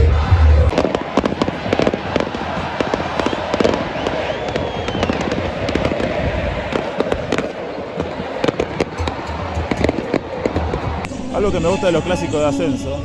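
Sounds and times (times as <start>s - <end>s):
firecrackers popping: 0.7s - 6.1s.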